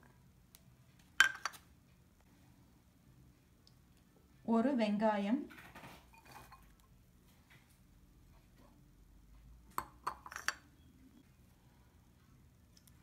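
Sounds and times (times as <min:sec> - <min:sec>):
bowls clinking together: 0:09.8 - 0:10.8.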